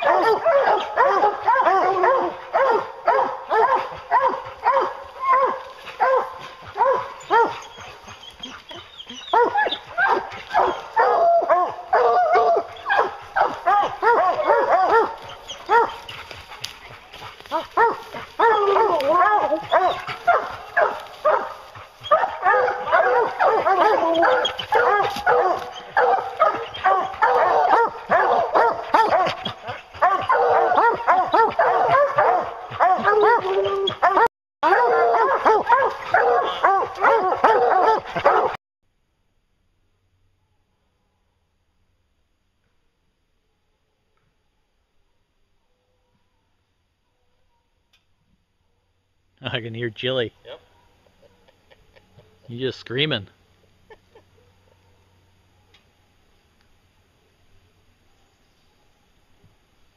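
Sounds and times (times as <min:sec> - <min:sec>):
dog barking: 0:00.0 - 0:38.6.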